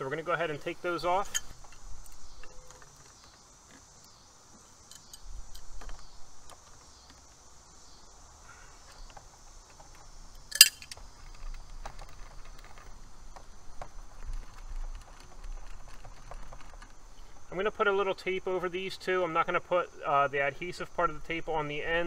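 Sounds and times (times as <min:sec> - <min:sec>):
faint metal clicks: 0:08.8 - 0:17.4
sharp metallic clack: 0:10.5 - 0:11.0.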